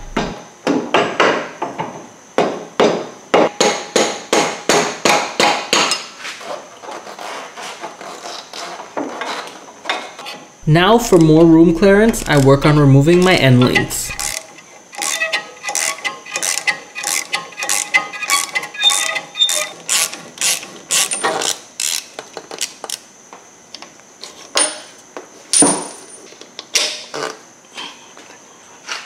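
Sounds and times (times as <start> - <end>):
hand ratchet clicking: 13.7 - 23.0.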